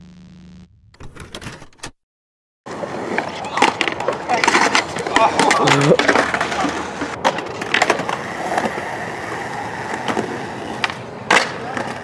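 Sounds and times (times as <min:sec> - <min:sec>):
skateboard clacks: 0:02.7 - 0:12.0
skateboard wheels rolling on concrete: 0:02.7 - 0:12.0.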